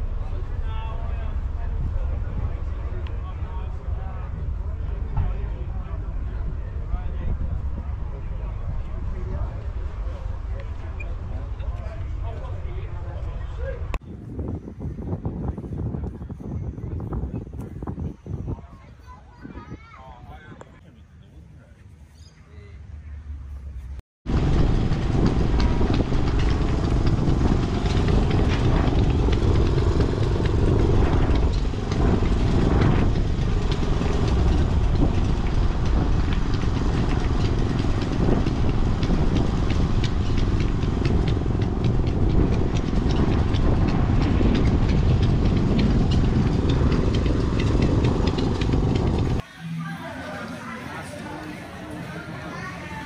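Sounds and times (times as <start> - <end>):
diesel engine running steadily: 0.0 - 14.0, 24.3 - 49.4.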